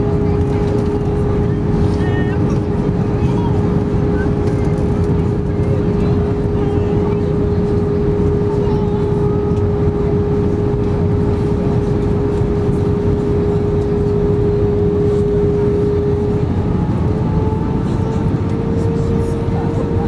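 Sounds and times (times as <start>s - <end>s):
jet engine drone: 0.0s - 20.0s
steady hum: 0.0s - 20.0s.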